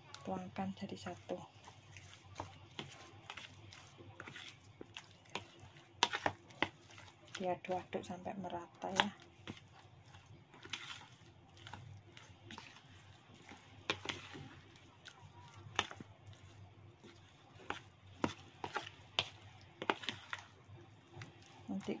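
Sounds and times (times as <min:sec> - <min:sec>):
spoon stirring thick paste: 0:00.0 - 0:22.0.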